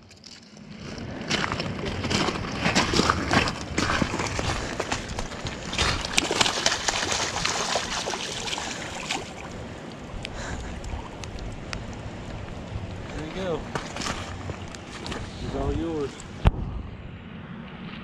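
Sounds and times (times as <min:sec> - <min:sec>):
water lapping: 0:00.6 - 0:16.5
fish splashing in water: 0:01.2 - 0:15.5.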